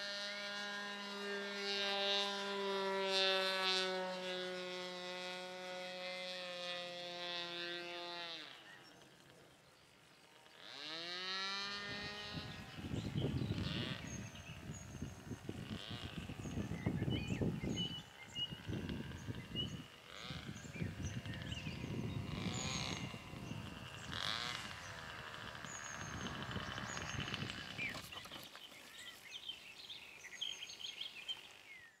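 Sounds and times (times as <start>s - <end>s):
model aircraft engine buzzing: 0.0s - 32.0s
birds chirping: 7.3s - 32.0s.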